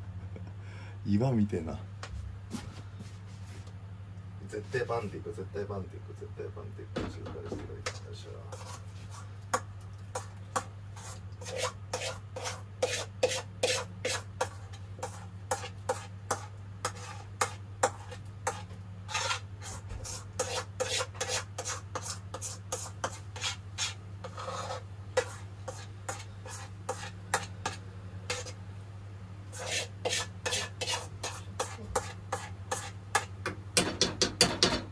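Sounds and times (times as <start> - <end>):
steady low hum: 0.0 - 34.9
spoon scraping steel bowl: 10.1 - 28.6, 29.5 - 33.3.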